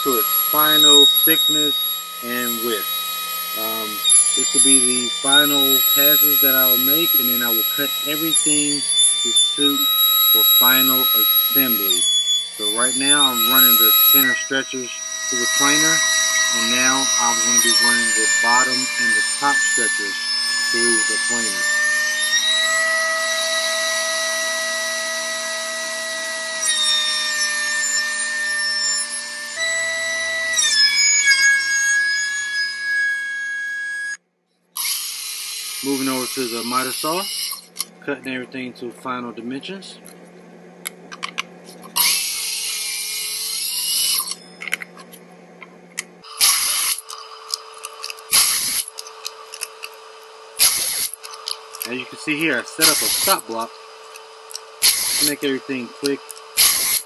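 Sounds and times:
short loud saw bursts: 0.0s - 22.4s, 34.8s - 37.7s, 46.2s - 47.3s, 48.3s - 49.0s, 50.6s - 51.2s, 51.8s - 53.7s, 54.8s - 57.0s
thickness planer cutting boards: 0.0s - 25.1s, 50.6s - 57.0s.

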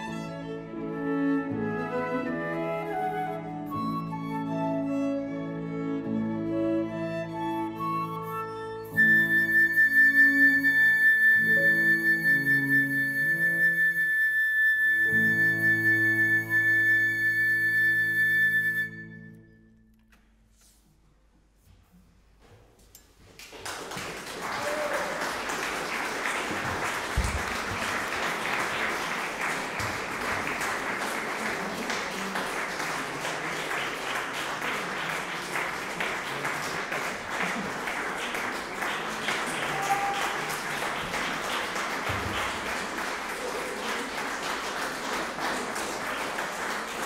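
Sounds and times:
audience applauding: 23.3s - 47.0s.

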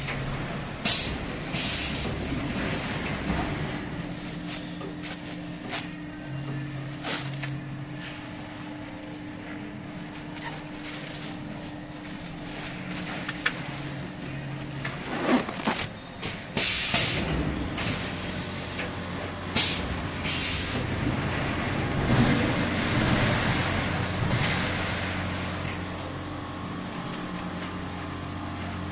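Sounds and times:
packing machine humming: 0.0s - 28.9s
plastic film rustling: 15.0s - 16.0s.

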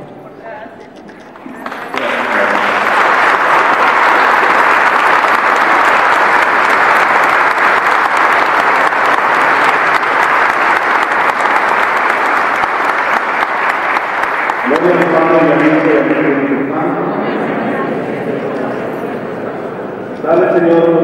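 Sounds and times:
large crowd applauding: 1.5s - 16.4s.

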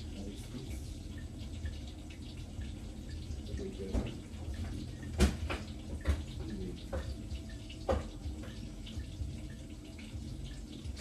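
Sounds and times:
tap water running into sink: 0.0s - 11.0s
sharp knocks and clatters: 3.8s - 7.2s, 7.8s - 8.6s.

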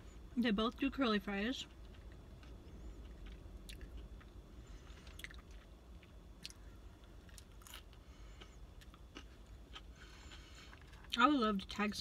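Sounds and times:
faint low hum: 0.0s - 12.0s
person chewing food: 1.6s - 11.2s.

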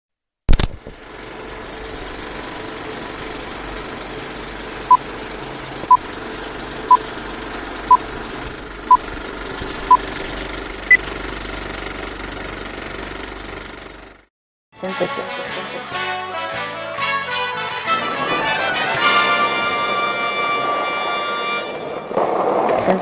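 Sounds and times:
film projector clattering: 0.6s - 14.2s.

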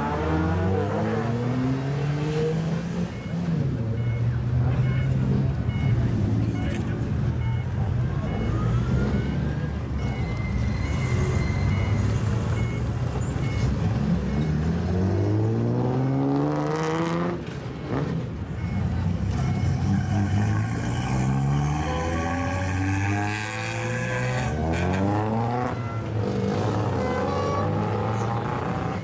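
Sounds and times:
car engines rumbling: 0.0s - 29.0s
car engine revving hard: 19.8s - 25.8s.

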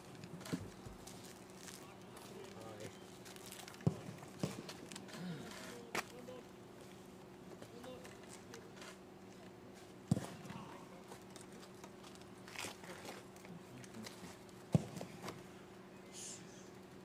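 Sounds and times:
faint steady hum: 0.0s - 17.0s
football being kicked: 3.8s - 4.6s, 10.1s - 10.5s, 14.7s - 15.3s.

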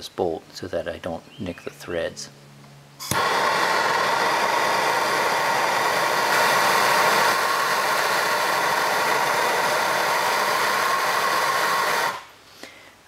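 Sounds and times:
gas torch hissing: 3.0s - 12.4s.

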